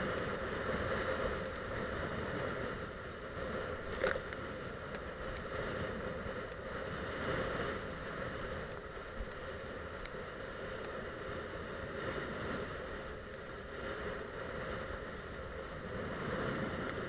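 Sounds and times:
wind and water rushing: 0:10.0 - 0:17.0.

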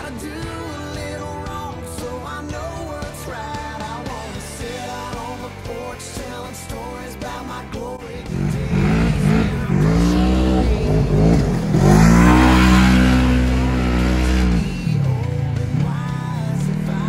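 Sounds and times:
utv engine revving: 0:00.0 - 0:17.0
tires spinning in loose sand: 0:08.3 - 0:15.2.

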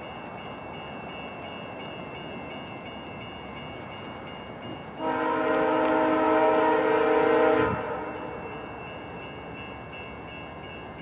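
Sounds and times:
train air horn chord: 0:05.0 - 0:08.6.

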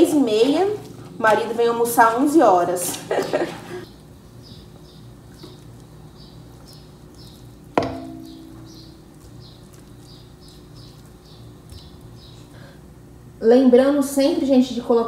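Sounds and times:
steady low hum: 0:03.7 - 0:15.0
metal pot clanking: 0:07.8 - 0:09.2.

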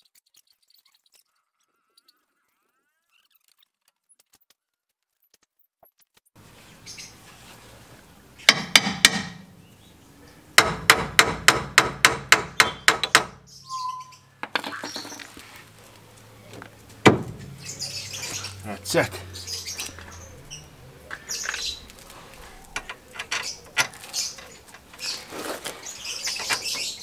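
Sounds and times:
hammer striking steel: 0:08.5 - 0:09.5, 0:10.6 - 0:13.4.

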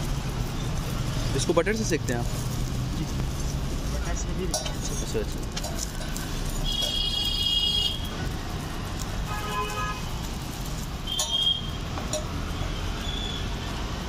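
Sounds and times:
street traffic rumble: 0:00.0 - 0:14.0
vehicle horns tooting: 0:06.5 - 0:08.2, 0:09.2 - 0:10.2, 0:11.0 - 0:11.9.

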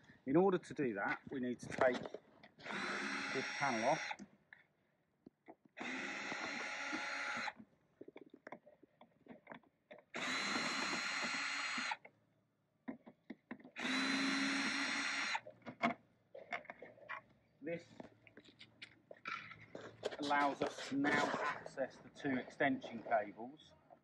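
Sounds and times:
cordless drill running: 0:02.6 - 0:04.2, 0:05.8 - 0:07.6, 0:10.1 - 0:12.1, 0:13.8 - 0:15.5
handling clicks and taps: 0:12.8 - 0:13.8.

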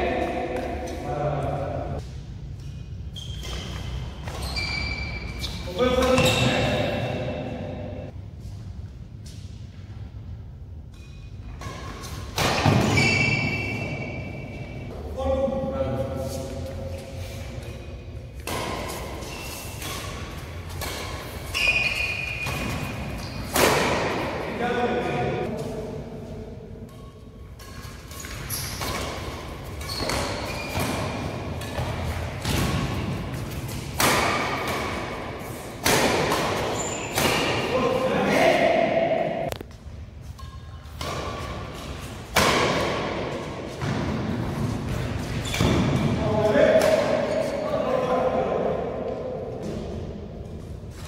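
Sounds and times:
racket hitting shuttlecock: 0:00.2 - 0:01.1, 0:10.9 - 0:14.8, 0:18.4 - 0:47.6
short high squeak: 0:21.5 - 0:22.5.

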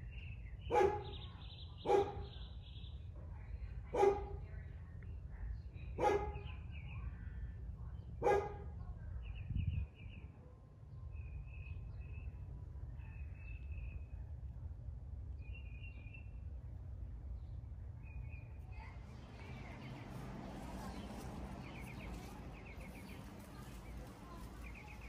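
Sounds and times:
dog barking: 0:00.7 - 0:01.2, 0:01.8 - 0:02.4, 0:03.9 - 0:04.4, 0:06.0 - 0:06.5, 0:08.2 - 0:08.7.

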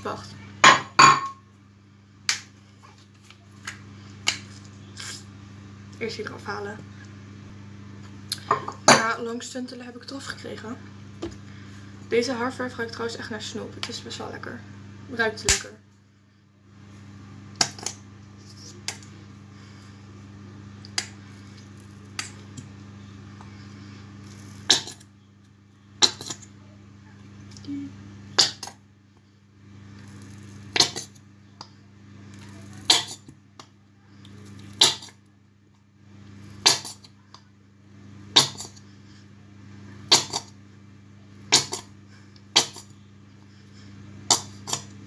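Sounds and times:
steady low hum: 0:00.0 - 0:45.0.

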